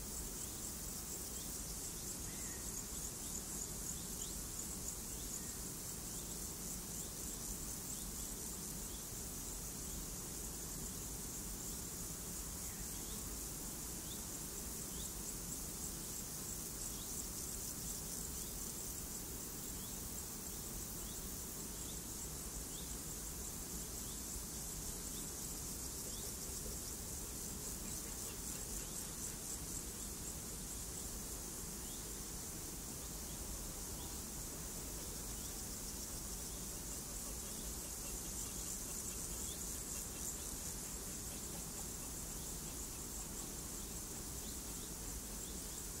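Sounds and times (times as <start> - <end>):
insects trilling: 0.0 - 46.0.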